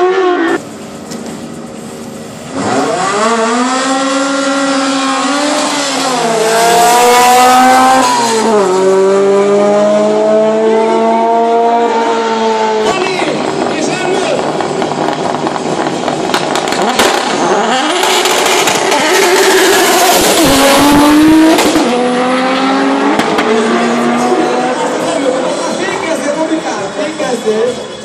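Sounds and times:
race car engine accelerating: 2.4s - 27.9s.

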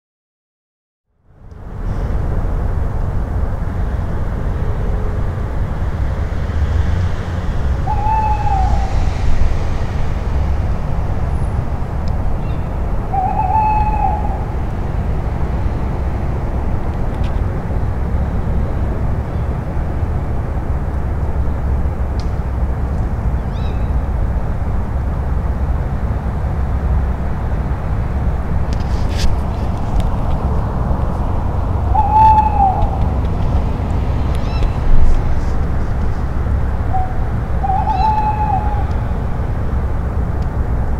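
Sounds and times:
steady low rumble: 1.2s - 40.9s
owl calling: 7.8s - 9.2s, 12.4s - 14.6s, 23.4s - 24.1s, 31.8s - 33.2s, 34.4s - 34.9s, 36.8s - 39.4s.

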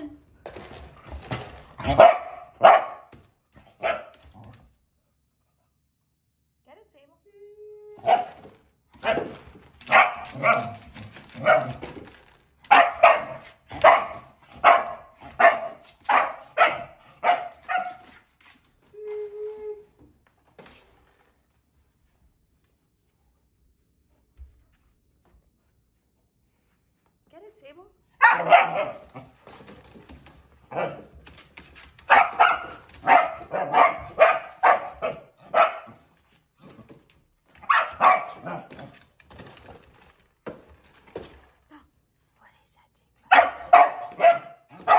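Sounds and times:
dog barking: 1.9s - 3.1s, 3.8s - 4.2s, 9.9s - 10.8s, 12.7s - 18.0s, 28.2s - 29.0s, 32.1s - 36.0s, 37.6s - 38.7s, 43.3s - 44.9s.

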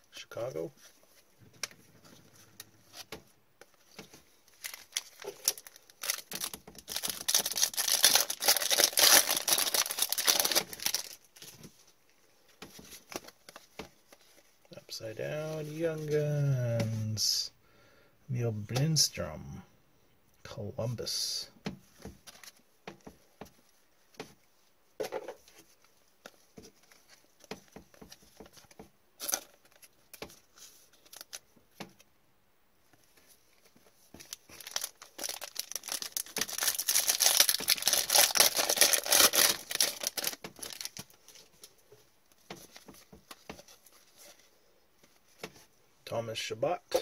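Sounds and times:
foil pack tearing and crinkling: 4.6s - 11.2s, 34.2s - 41.2s.

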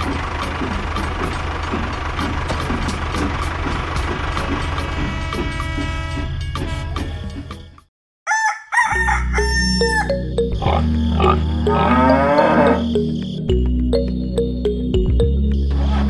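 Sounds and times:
chickens clucking and crowing: 8.3s - 12.8s
background music with bass line: 9.0s - 16.0s.

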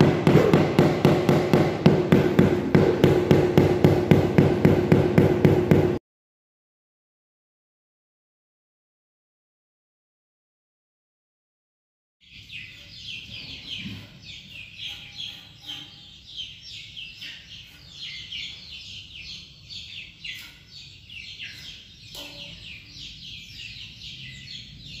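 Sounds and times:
small birds chirping: 12.2s - 25.0s.

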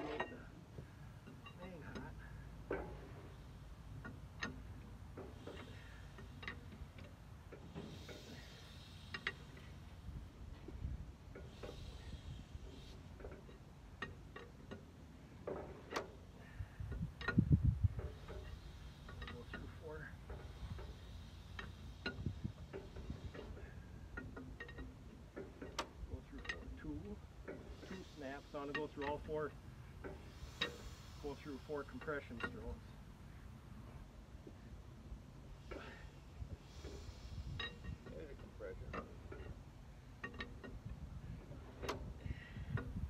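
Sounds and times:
short soft hiss: 11.4s - 13.6s, 18.0s - 24.0s, 27.5s - 33.4s, 35.5s - 38.0s.

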